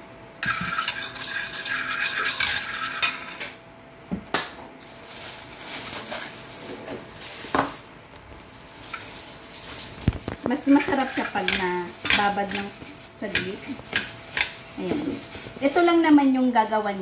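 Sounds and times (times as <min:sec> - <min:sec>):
plastic bag crinkling: 0:04.8 - 0:17.0.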